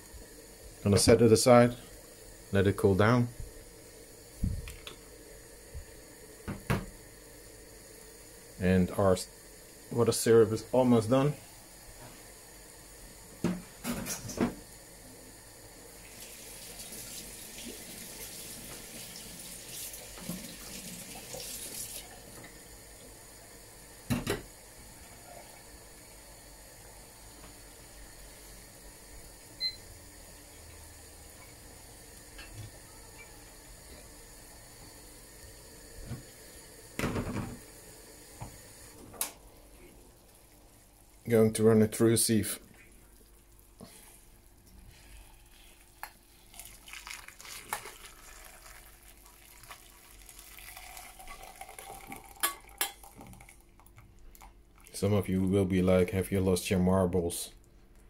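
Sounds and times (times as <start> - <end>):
hiss like running water: 14.6 - 23.6
syrup simmering in saucepan: 37.6 - 55.2.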